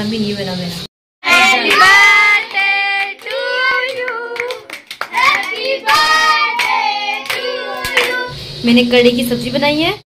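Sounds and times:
children and woman singing: 1.2s - 8.4s
hand clapping: 1.3s - 8.2s.

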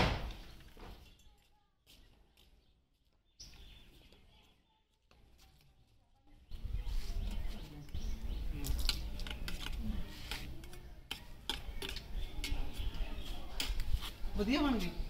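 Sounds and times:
faint murmured voices: 3.5s - 15.0s.

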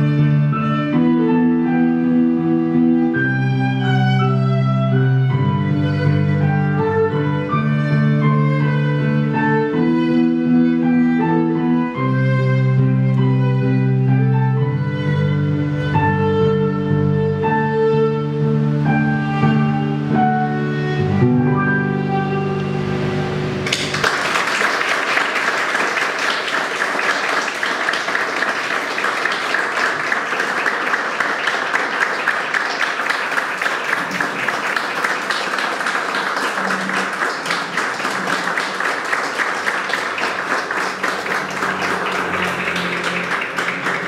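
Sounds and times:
music: 0.0s - 25.2s, 30.2s - 44.0s
audience applauding: 23.6s - 44.0s.

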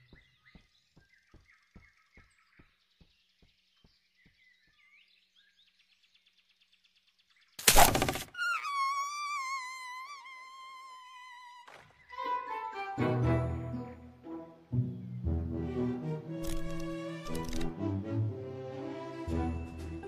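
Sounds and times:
faint bird chirps: 0.0s - 7.6s.

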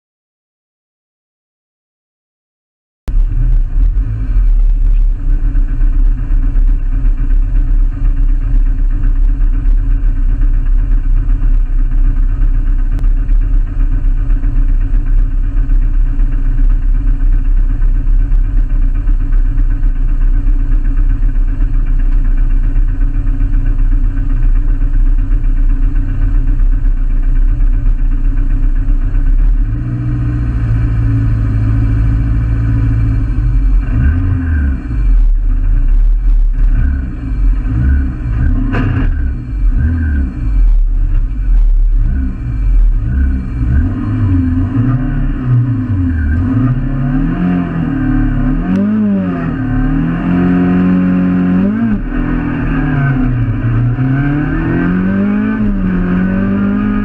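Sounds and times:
car engine idling: 3.1s - 57.0s.

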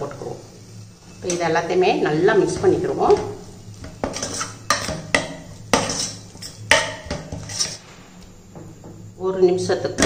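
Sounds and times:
metal spoon scraping a steel pot: 3.8s - 7.8s.

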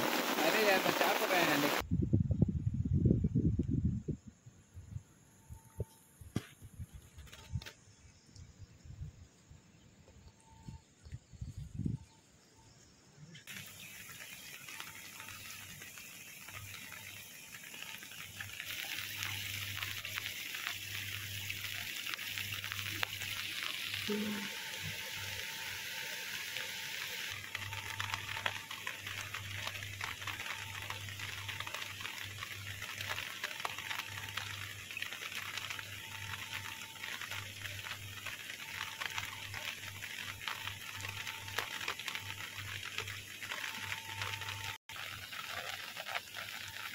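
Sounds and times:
rain falling on a river: 0.0s - 1.8s, 13.4s - 46.9s.

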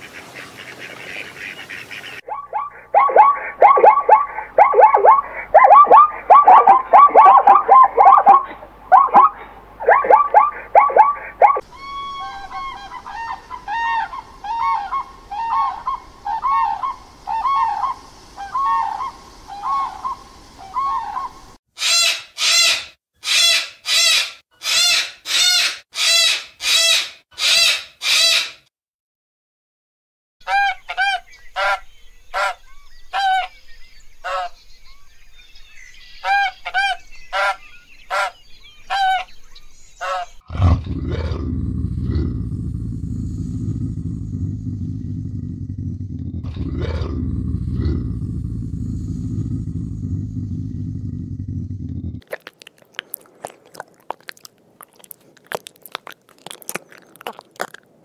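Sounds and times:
crane calling: 2.2s - 28.4s
cockatoo screeching: 2.3s - 28.6s
low rumble: 40.8s - 52.2s.

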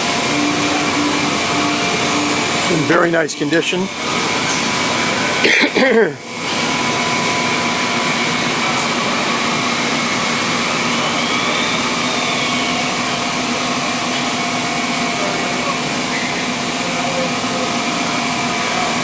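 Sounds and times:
running machinery: 0.0s - 19.0s
steady hums: 0.0s - 19.0s.

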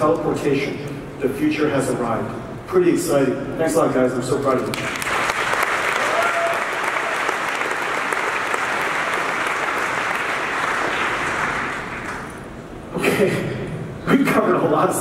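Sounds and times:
audience applauding: 4.7s - 12.4s.

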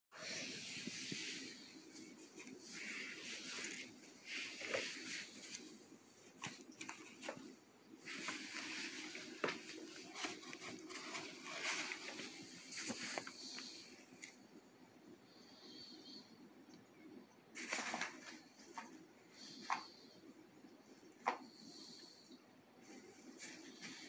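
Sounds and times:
plastic sheet rustling and crinkling: 0.2s - 14.4s, 17.5s - 19.9s.

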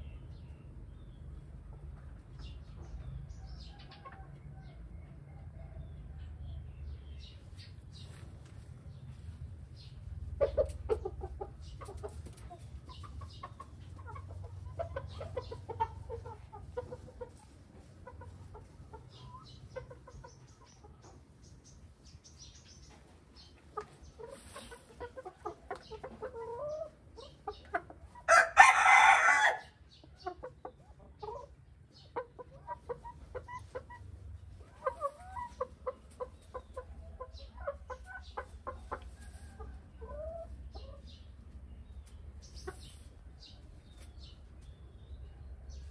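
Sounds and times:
hens clucking: 7.2s - 45.9s
loud hen call: 28.3s - 29.7s.

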